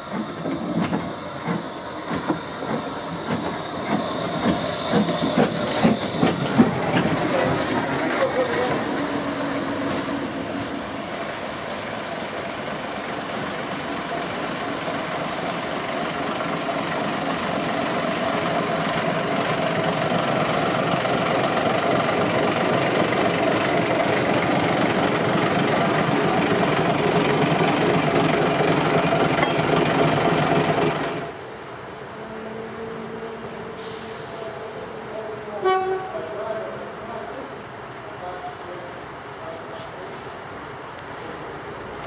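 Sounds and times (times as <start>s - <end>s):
diesel locomotive engine knocking: 0.0s - 10.6s, 12.5s - 31.3s.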